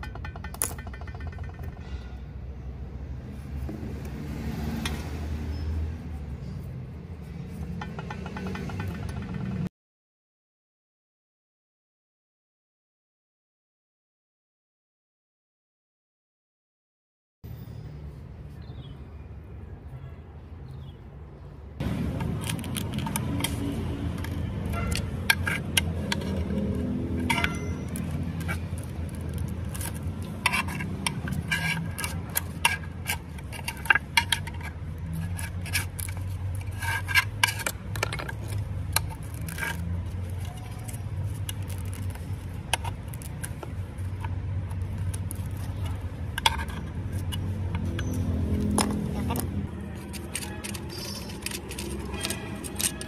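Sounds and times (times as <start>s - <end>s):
scraper scraping paint off metal: 21.9s - 48.3s, 48.9s - 53.0s
sharp metal-on-metal clicks: 50.0s - 53.0s.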